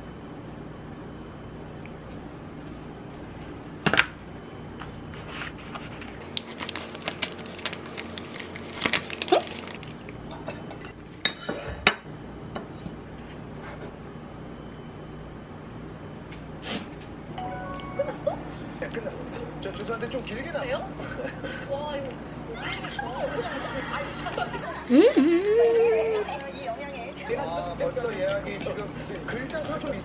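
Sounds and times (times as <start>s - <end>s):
food packet crinkling: 5.8s - 10.1s
dishes clinking on stone countertop: 10.3s - 12.0s.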